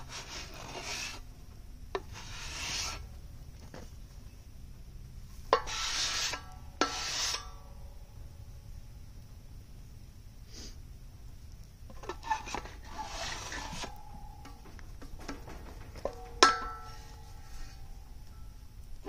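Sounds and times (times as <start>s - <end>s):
wet clay scraped on wooden board: 0.0s - 1.2s, 2.0s - 3.0s
sharp ringing knocks: 13.8s - 18.7s.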